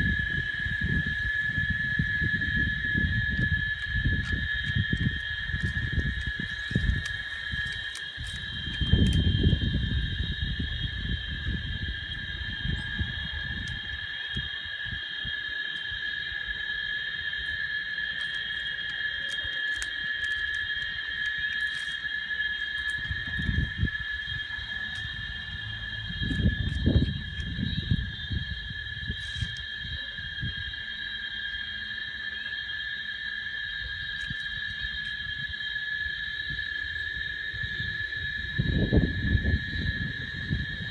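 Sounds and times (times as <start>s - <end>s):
cicadas buzzing: 0.0s - 40.9s.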